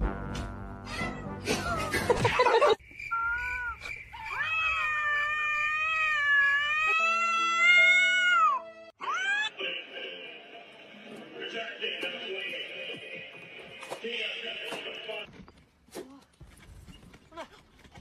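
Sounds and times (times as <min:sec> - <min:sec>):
cat yowling: 0:03.2 - 0:09.5.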